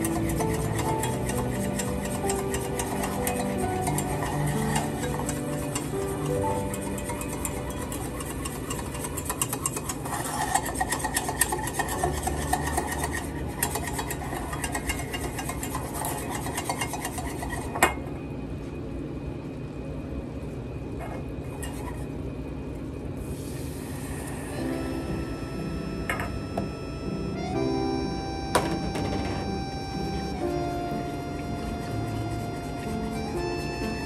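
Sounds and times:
whisk rattling in saucepan: 0.0 - 17.7.

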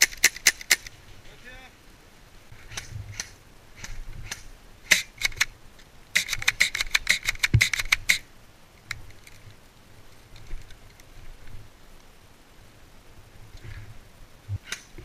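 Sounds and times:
airsoft gunshots: 2.7 - 5.4.

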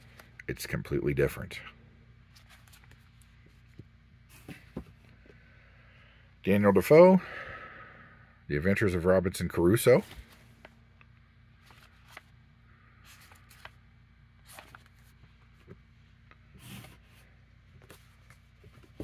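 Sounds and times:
book pages rustling: 2.3 - 5.0, 9.9 - 10.8, 11.6 - 12.4, 13.1 - 13.8, 14.4 - 15.8, 16.5 - 19.0.

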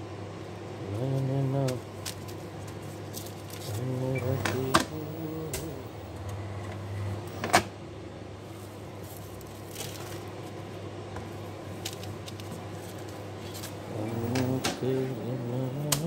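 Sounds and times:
machine humming: 0.0 - 16.0.

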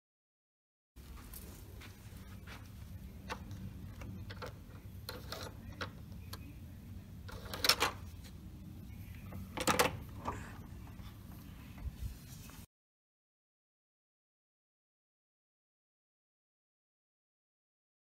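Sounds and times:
door lock clacks: 7.3 - 8.1, 9.3 - 10.6.

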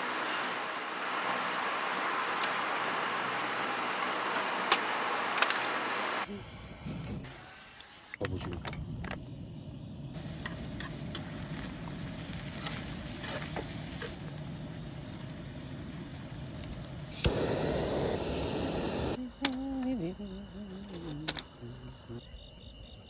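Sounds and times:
camp stove burner running: 9.5 - 19.6
blowtorch clicking and hissing: 10.2 - 19.6.

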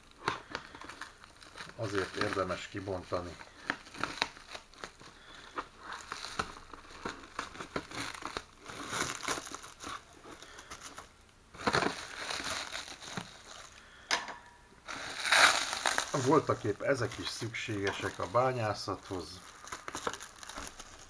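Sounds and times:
plastic wrapping crinkling: 0.0 - 14.1, 14.8 - 21.0.

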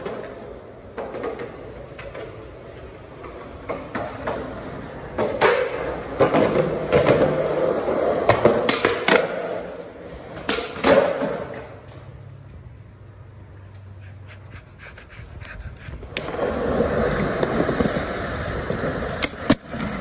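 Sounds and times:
skateboard deck clacking: 0.0 - 12.0, 16.0 - 20.0
skateboard wheels rolling on concrete: 0.0 - 20.0.

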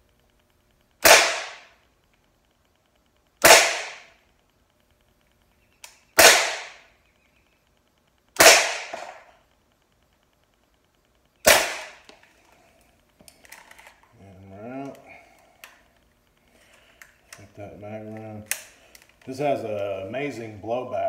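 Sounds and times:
air pistol shots: 1.0 - 1.8, 3.4 - 4.2, 6.2 - 6.9, 8.4 - 9.4, 11.4 - 12.1.

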